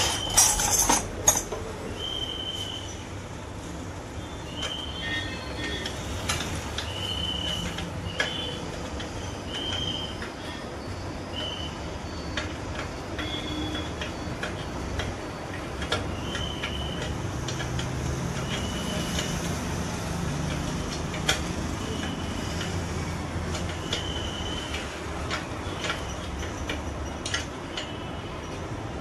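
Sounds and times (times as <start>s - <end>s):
workshop background noise: 0.0s - 29.0s
spanner clicking on bolts: 12.4s - 28.8s.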